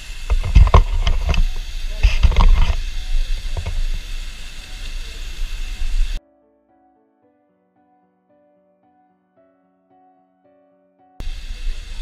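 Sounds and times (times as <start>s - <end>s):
waterfall rushing: 0.0s - 6.2s, 11.2s - 12.0s.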